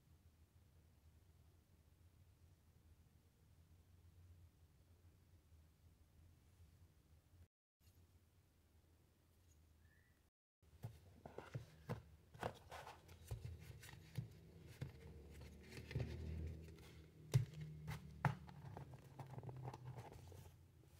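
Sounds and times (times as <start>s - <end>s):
paper rustling: 10.8s - 20.6s.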